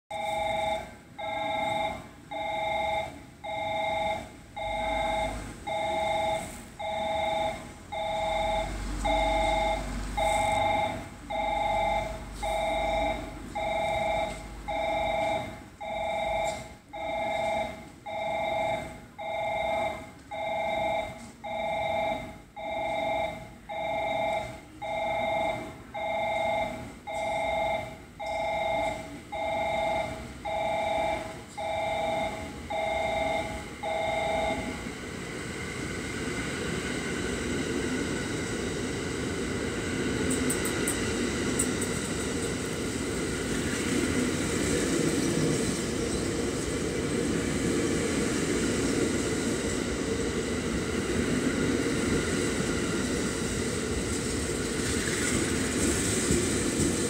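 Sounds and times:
electronic warning bell pulsing: 0.1s - 46.9s.

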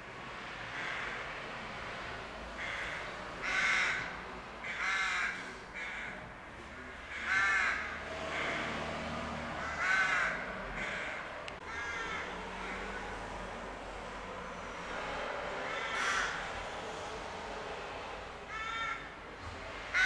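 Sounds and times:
rooks cawing: 0.7s - 1.5s, 2.6s - 6.2s, 6.9s - 17.1s, 18.2s - 19.2s.

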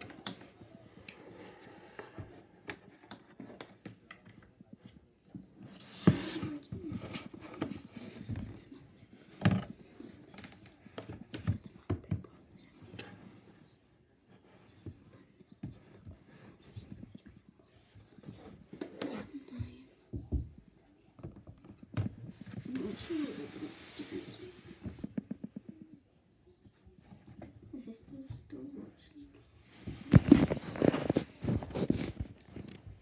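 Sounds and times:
clothing rustle: 21.8s - 25.2s, 29.6s - 33.0s.

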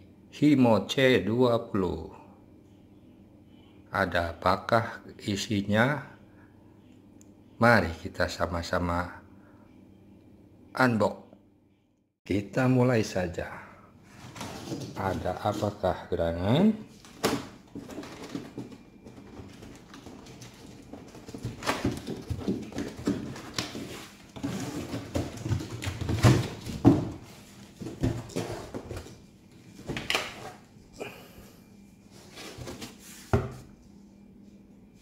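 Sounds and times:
cardboard scraping and rubbing: 20.4s - 25.9s.

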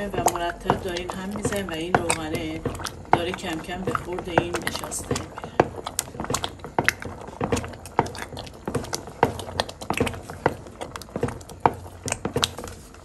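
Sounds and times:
wooden spoon stirring thick mixture: 0.0s - 13.0s.

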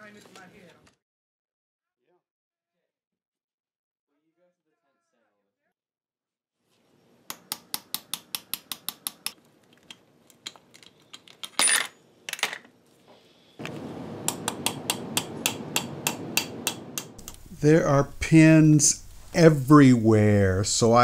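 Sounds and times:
background hiss: 12.9s - 21.0s
hammer tapping metal punch: 14.2s - 17.4s.

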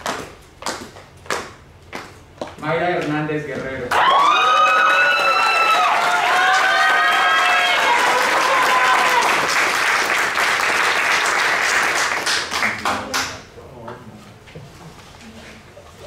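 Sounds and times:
audience applause: 3.9s - 13.2s.

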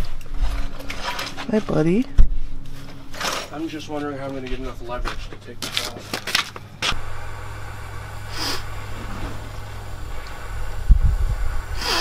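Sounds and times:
gas torch roaring: 6.9s - 12.0s
heavy rumbling bumps: 6.9s - 12.0s
short hissing bursts: 7.0s - 12.0s.

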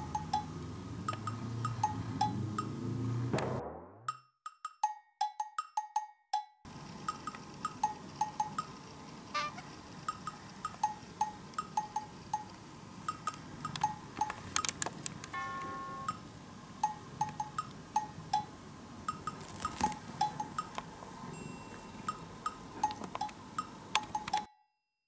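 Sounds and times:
playful plinking percussion tune: 0.0s - 2.9s, 4.1s - 8.7s, 15.4s - 19.4s, 20.2s - 24.5s
chime-like tone: 15.4s - 16.2s, 21.3s - 22.6s.

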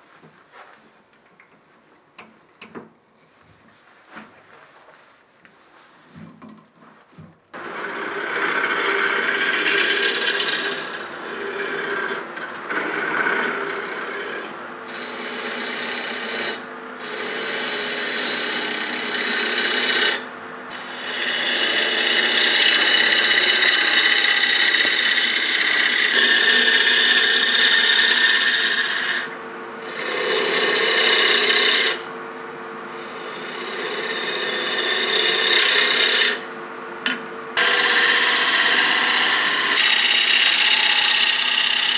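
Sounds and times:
lathe tool cutting spinning wood: 7.6s - 32.1s, 32.9s - 36.5s, 37.6s - 41.9s.

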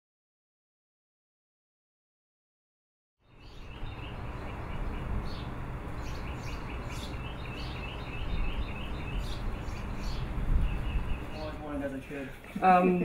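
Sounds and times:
small birds chirping: 3.2s - 13.0s
low outdoor rumble: 3.3s - 13.0s.

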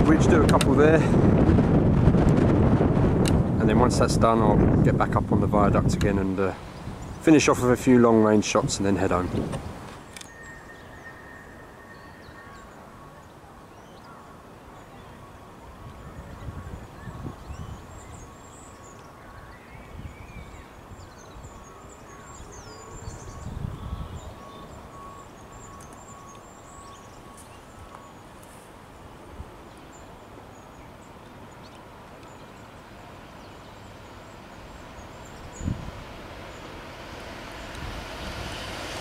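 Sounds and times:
wind gusting on microphone: 0.0s - 30.2s, 34.0s - 39.0s
distant freight train: 0.0s - 39.0s
small birds chirping: 5.7s - 36.9s
faint steady tone: 9.9s - 36.7s.

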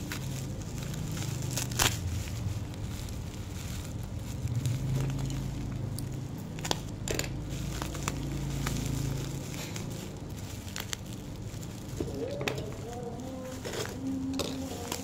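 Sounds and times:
bubble wrap crinkling: 0.0s - 15.0s
low steady hum: 0.0s - 15.0s.

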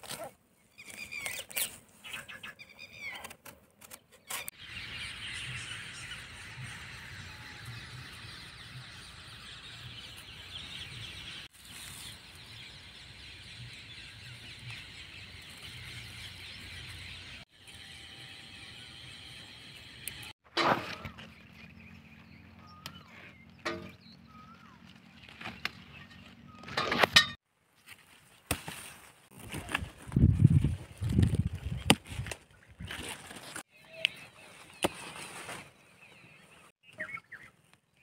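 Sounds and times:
birds chirping: 4.0s - 20.3s, 20.9s - 27.3s, 33.7s - 38.0s.

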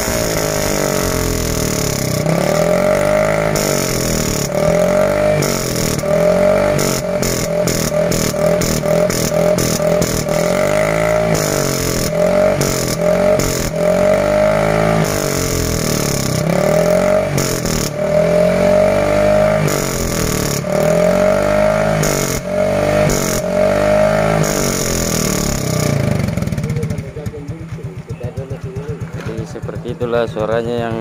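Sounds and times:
scooter engine revving: 0.0s - 31.0s.

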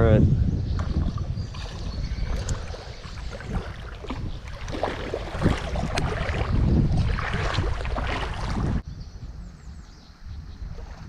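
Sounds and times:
wind rumbling on microphone: 0.0s - 11.0s
fish thrashing in water: 0.8s - 8.8s.

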